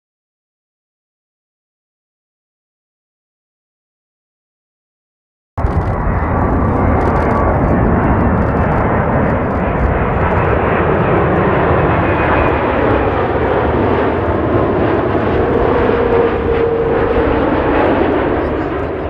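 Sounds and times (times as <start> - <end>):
jet engine rush: 5.6 - 19.0.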